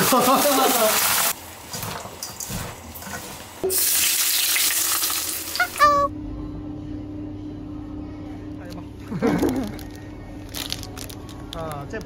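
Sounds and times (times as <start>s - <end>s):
food sizzling in hot oil: 0.0s - 5.8s.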